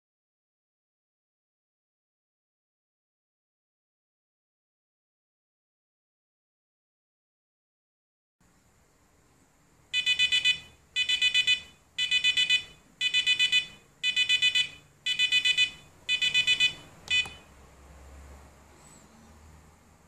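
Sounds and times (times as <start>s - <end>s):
alarm clock beeping: 10.0s - 17.5s.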